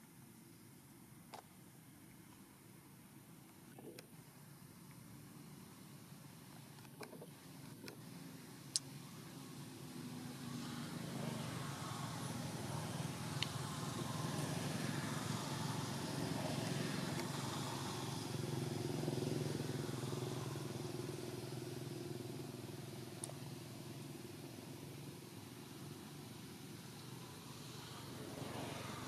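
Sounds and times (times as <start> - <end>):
vehicle engine passing: 8.0 - 29.0
faint sharp ticks: 8.7 - 8.9, 13.4 - 13.6.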